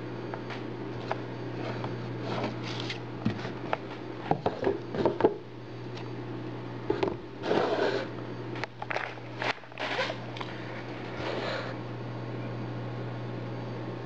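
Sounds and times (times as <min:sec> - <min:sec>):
steady hum: 0:00.0 - 0:14.0
scraping rustle on desk: 0:01.6 - 0:03.6, 0:07.4 - 0:08.1.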